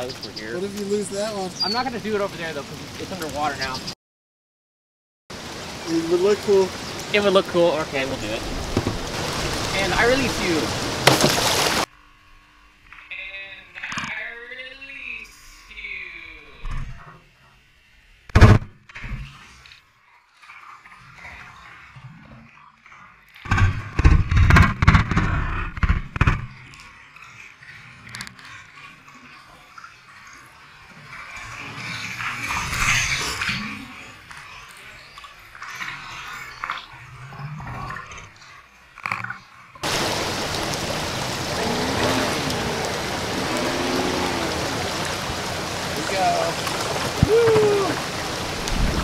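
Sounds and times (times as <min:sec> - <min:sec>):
creek water rushing: 0:05.3 - 0:11.9, 0:39.8 - 0:49.0
heavy splashes and knocks: 0:08.3 - 0:11.9, 0:39.8 - 0:49.0.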